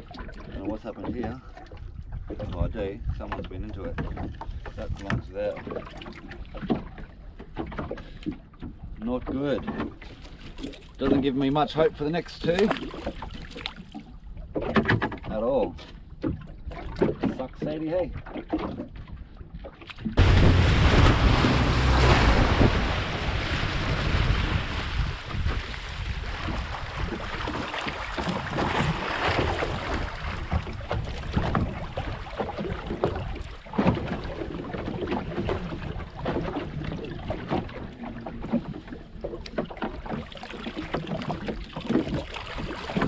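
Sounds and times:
boat motor rumble: 0.0s - 43.0s
water slapping hull: 0.0s - 43.0s
short splashes: 9.5s - 11.1s, 12.4s - 15.3s, 19.6s - 43.0s
rush of spray and wind: 20.2s - 37.5s.

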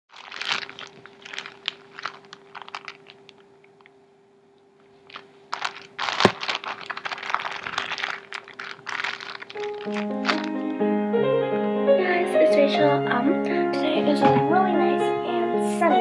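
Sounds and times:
plastic bag crinkling: 0.1s - 4.0s, 4.9s - 10.7s.

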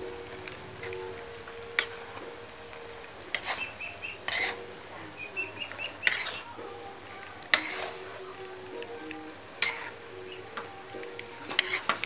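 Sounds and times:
metal spoon scraping wok: 3.2s - 6.8s, 7.4s - 8.4s, 9.6s - 10.0s, 11.0s - 12.0s.

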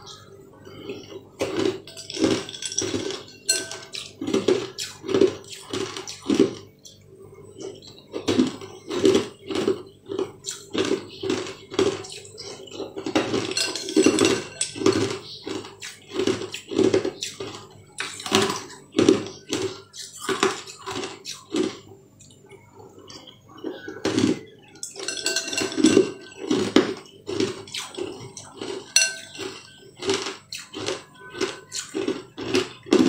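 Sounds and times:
wet slurping and chewing: 0.0s - 6.7s, 7.5s - 21.9s, 23.0s - 33.0s
metal spoon clinking in glass bowl: 0.8s - 5.2s, 13.1s - 15.4s, 24.8s - 32.1s.

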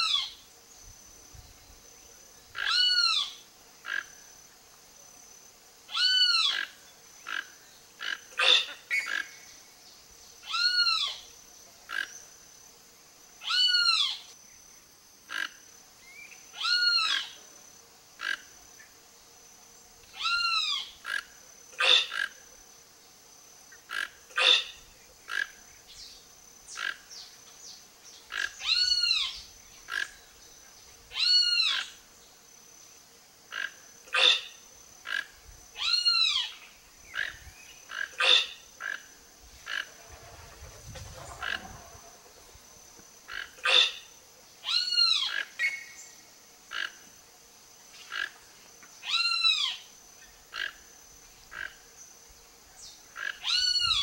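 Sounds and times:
toucan calling: 16.2s - 17.4s, 20.1s - 21.2s, 31.1s - 32.0s, 43.3s - 46.0s.

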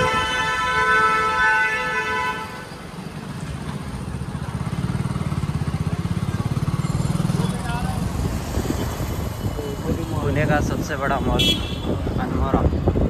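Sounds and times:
vehicle horn: 0.0s - 2.7s, 11.3s - 12.0s.

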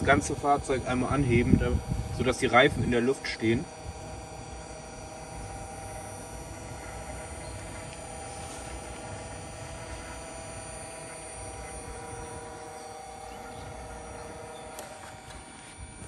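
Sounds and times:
hydraulic pump humming: 0.0s - 16.0s
pump stopping click: 6.7s - 16.0s.

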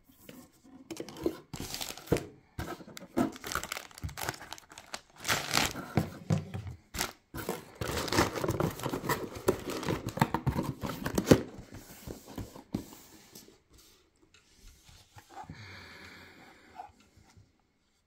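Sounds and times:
plastic packing wrap crinkling: 1.6s - 2.3s, 3.0s - 6.2s, 6.9s - 10.2s.

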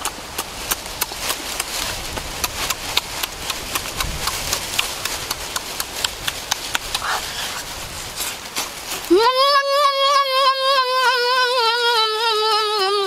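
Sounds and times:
chewing and lip-smacking: 0.0s - 7.6s.

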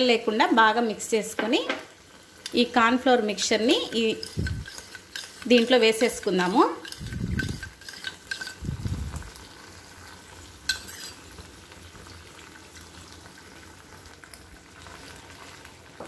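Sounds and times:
vegetables sizzling in pan: 0.0s - 16.0s
spoon scraping steel cup: 3.9s - 8.7s, 10.7s - 11.2s.

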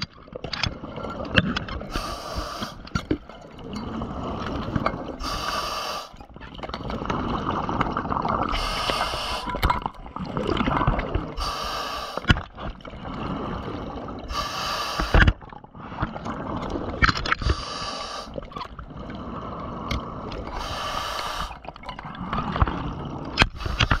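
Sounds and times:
regulator hiss on inhale: 1.9s - 2.9s, 5.2s - 6.2s, 8.5s - 9.5s, 11.4s - 12.3s, 14.3s - 15.3s, 17.4s - 18.4s, 20.6s - 21.6s, 23.6s - 24.0s
bubbly exhales underwater: 6.2s - 11.4s.

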